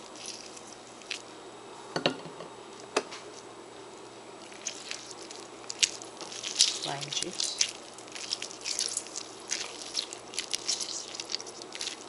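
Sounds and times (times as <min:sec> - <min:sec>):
lime squelching when squeezed: 0:00.0 - 0:01.2, 0:04.4 - 0:12.0.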